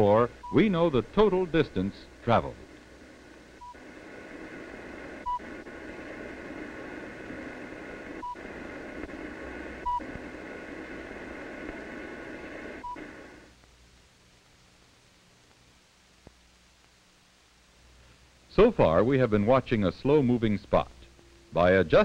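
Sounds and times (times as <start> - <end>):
radio static: 0.0 - 13.5.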